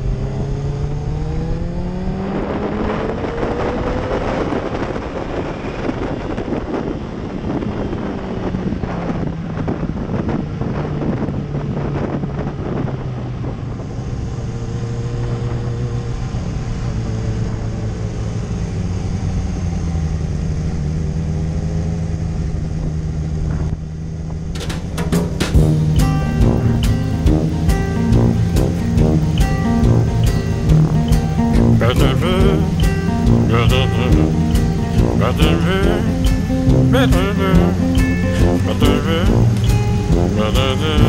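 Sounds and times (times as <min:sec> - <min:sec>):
motorcycle engine cruising: 0:00.0 - 0:41.0
wind noise on microphone: 0:00.0 - 0:41.0
music: 0:24.6 - 0:41.0.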